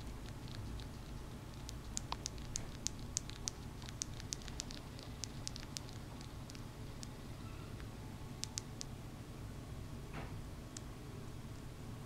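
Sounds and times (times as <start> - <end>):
hamster pup clicks and chirps: 0.0 - 8.9
low room hum: 0.0 - 12.0.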